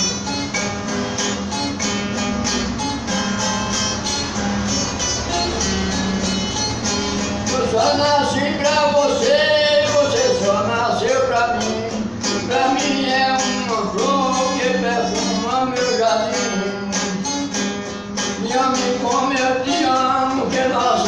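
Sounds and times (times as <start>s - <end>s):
acoustic guitar melody with strummed chords: 0.0s - 21.0s.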